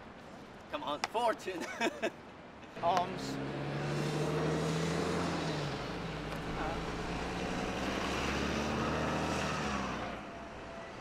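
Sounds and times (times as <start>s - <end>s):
vehicle engine humming: 2.8s - 11.0s.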